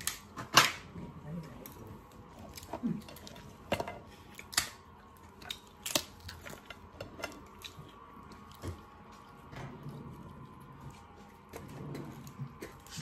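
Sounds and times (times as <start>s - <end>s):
lobster shells cracking: 2.5s - 8.7s.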